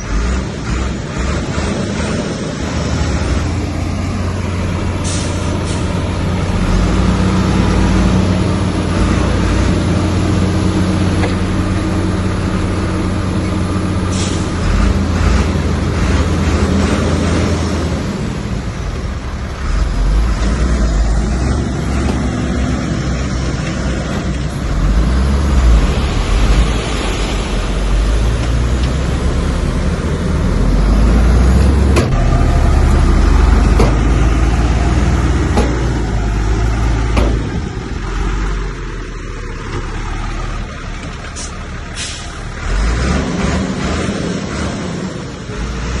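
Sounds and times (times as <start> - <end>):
diesel machinery engine rumble: 0.0 - 46.0
sharp knocks: 33.7 - 34.2, 35.5 - 36.0, 37.1 - 37.6.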